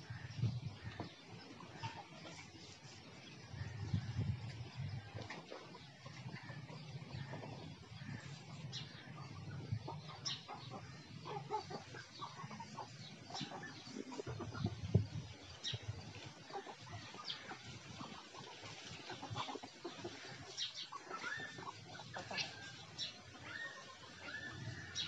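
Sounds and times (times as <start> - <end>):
hen clucking: 0.0 - 25.0.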